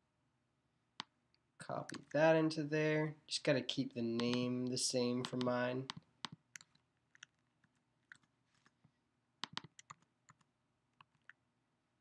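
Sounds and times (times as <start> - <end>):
computer keyboard keystrokes: 9.4 - 11.4.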